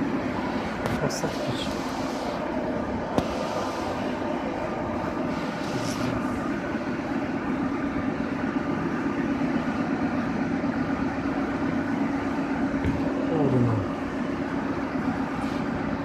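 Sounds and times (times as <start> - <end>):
metro train low hum: 0.0 - 16.0.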